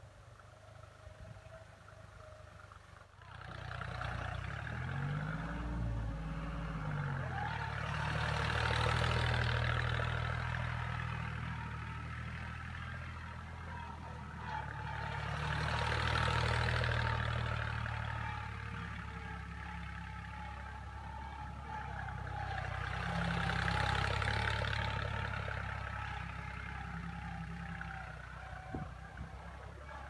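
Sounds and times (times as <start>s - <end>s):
tractor diesel engine under load: 0.0s - 30.0s.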